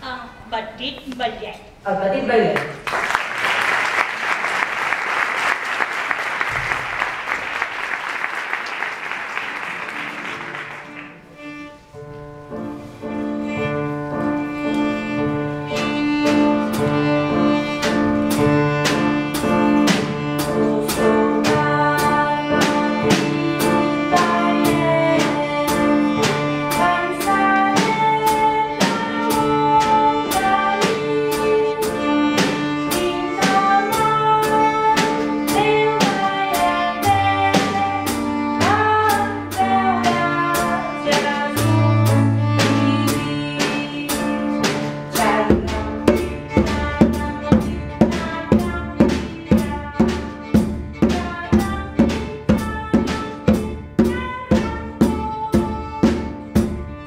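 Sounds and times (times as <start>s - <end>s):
audience applauding: 2.6s - 11.3s
violin melody: 9.4s - 57.0s
drums keeping a beat: 15.2s - 57.0s.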